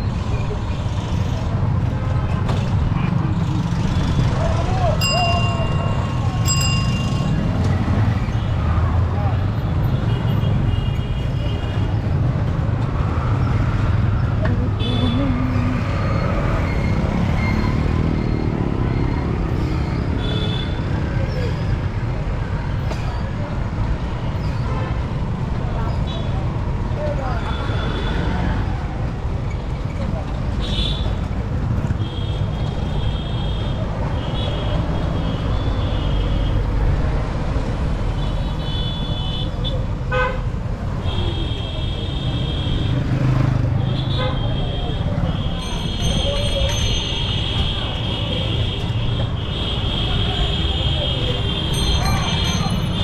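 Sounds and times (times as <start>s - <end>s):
auto-rickshaw and motorbike engines: 0.0s - 53.0s
road rumble: 0.0s - 53.0s
high ringing tones: 5.0s - 7.4s.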